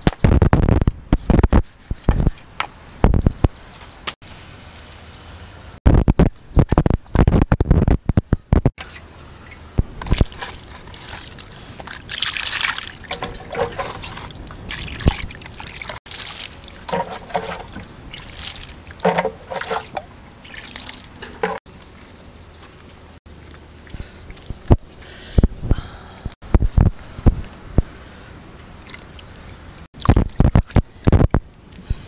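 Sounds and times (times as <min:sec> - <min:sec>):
water trickling and splashing: 0:08.8 - 0:21.6, 0:28.6 - 0:31.9.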